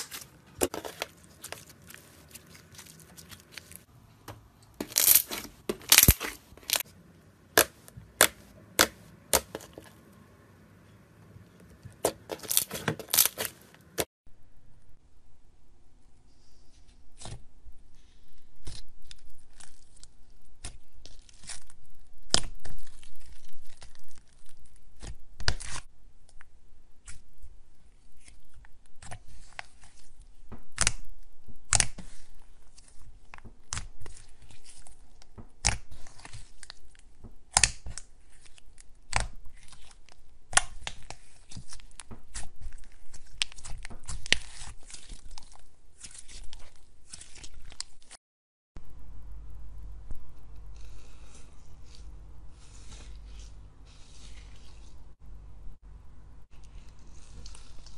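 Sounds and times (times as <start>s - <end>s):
slime popping and crackling: 4.8s - 6.8s, 12.0s - 14.0s.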